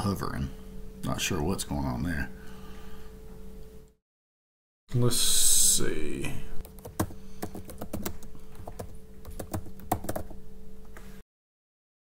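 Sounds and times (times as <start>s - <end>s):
faint steady hum: 0.0s - 4.0s, 4.9s - 11.2s
keyboard typing: 6.6s - 10.4s.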